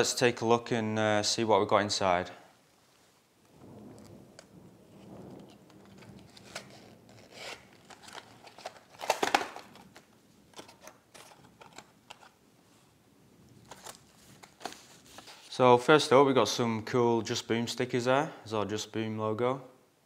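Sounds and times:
paper rustling: 5.2s - 12.9s, 13.6s - 15.6s.

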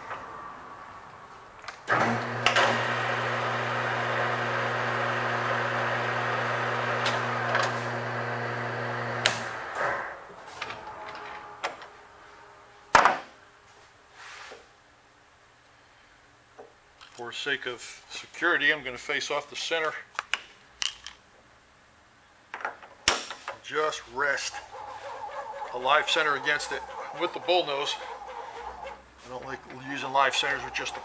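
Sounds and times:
metal lathe humming: 1.9s - 13.0s, 24.3s - 31.0s.

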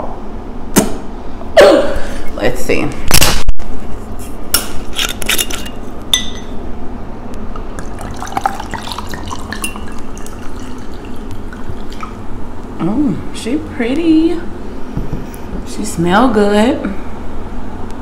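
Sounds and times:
glass clink: 6.1s - 6.6s, 9.3s - 10.1s
liquid pouring into a glass: 7.7s - 12.3s.

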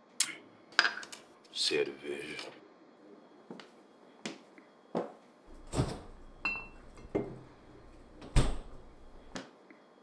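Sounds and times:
glassy ring: 6.4s - 7.2s
glass bottles clinking: 6.4s - 7.4s.

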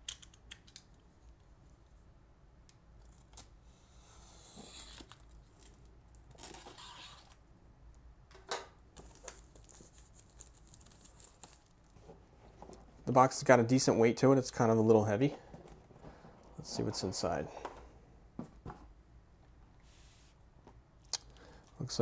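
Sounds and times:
plastic wrap ripping: 9.0s - 11.9s
plastic wrap crackling: 9.0s - 12.0s.

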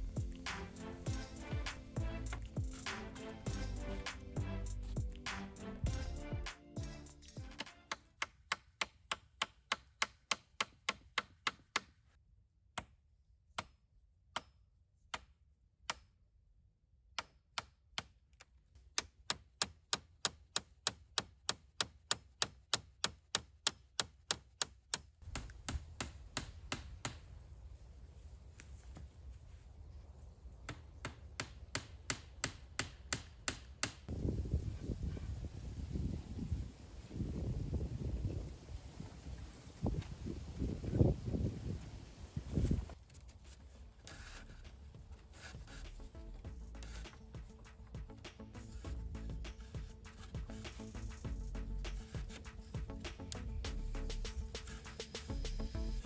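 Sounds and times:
hatchet tapping nails: 7.3s - 12.0s, 12.8s - 16.1s, 17.1s - 27.2s, 30.7s - 34.1s
wind rumbling on microphone: 34.1s - 43.0s.

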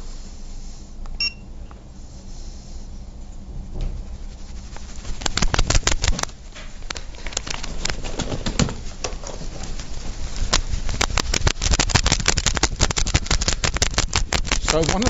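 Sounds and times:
clothes rustling: 4.0s - 15.0s.

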